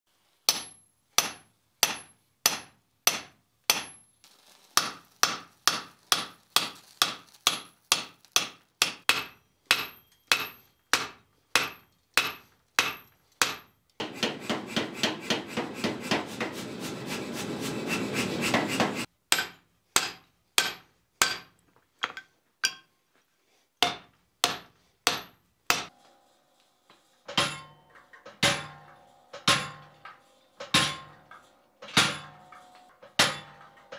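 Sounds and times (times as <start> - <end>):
power hammer pounding: 7.5 - 21.4
hammer ringing on anvil: 8.8 - 14.6, 27.3 - 33.9.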